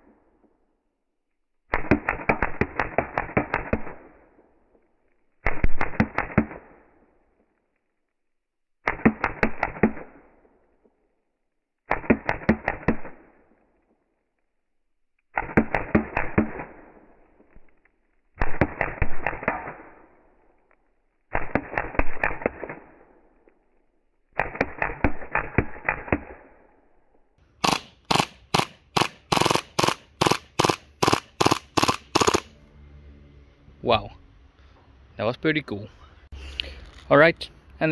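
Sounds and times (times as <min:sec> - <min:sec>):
airsoft pistol bursts of dull cracks: 0:01.6 - 0:04.8, 0:05.4 - 0:07.6, 0:08.8 - 0:10.9, 0:11.8 - 0:13.8, 0:15.2 - 0:17.5, 0:18.3 - 0:20.6, 0:21.3 - 0:26.8, 0:27.6 - 0:32.5
sharp single cracks: 0:18.4 - 0:20.0, 0:27.6 - 0:32.5.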